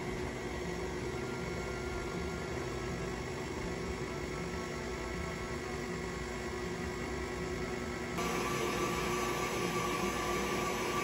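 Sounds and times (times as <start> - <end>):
stand mixer running: 8.1 - 11.0.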